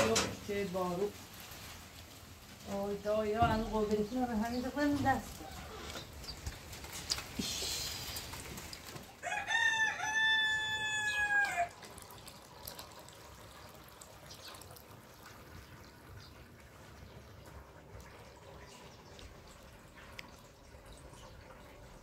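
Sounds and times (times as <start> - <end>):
rooster crowing: 9.2 - 11.8
liquid pouring into metal pot: 11.6 - 22.0.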